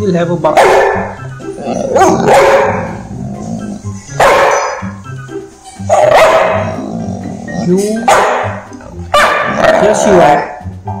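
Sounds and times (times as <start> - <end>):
background music: 0.0 - 11.0
dog barking: 0.5 - 1.2, 1.9 - 3.1, 4.1 - 4.9, 5.9 - 6.8, 8.1 - 10.0.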